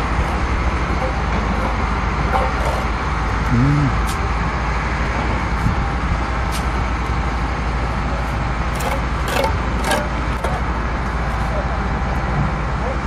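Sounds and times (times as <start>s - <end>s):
trowel scraping mortar on bricks: 8.7s - 10.6s.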